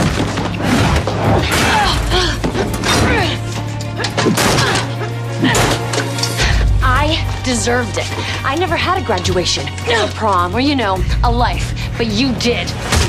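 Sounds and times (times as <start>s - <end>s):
dramatic score: 0.0s - 13.0s
voice: 6.8s - 12.8s.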